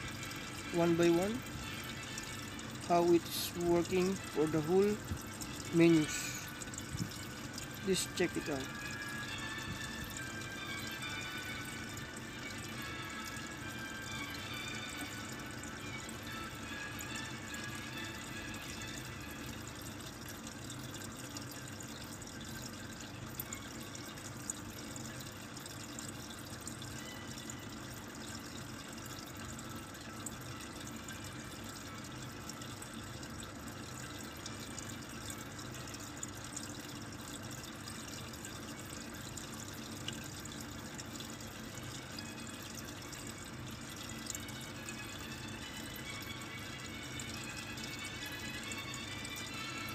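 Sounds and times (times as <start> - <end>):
appliance humming: 0.0 - 49.9.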